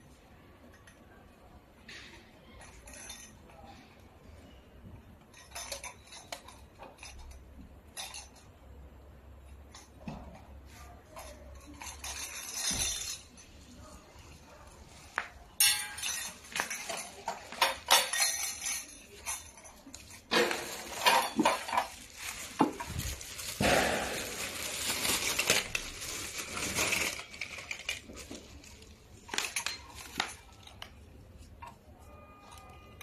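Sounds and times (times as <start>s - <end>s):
small metal fittings clinking: 5.2s - 8.8s, 9.4s - 33.0s
plastic bag crinkling: 19.9s - 30.8s.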